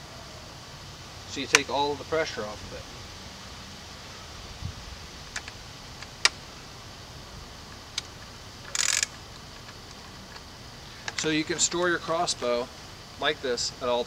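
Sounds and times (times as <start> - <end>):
crossbow clicks: 5.3 - 6.5, 7.7 - 11.9
short scraping rattle: 8.0 - 10.1.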